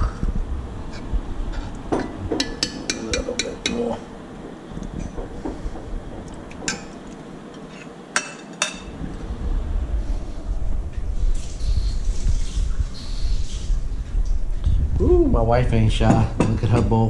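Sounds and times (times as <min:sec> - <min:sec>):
utensils clinking against dishes: 0:01.5 - 0:04.0, 0:06.6 - 0:08.9, 0:16.1 - 0:17.0.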